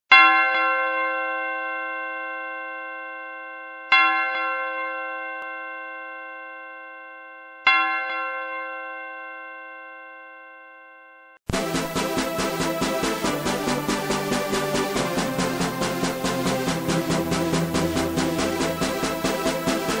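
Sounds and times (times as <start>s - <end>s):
bell ringing: 10.9s - 20.0s.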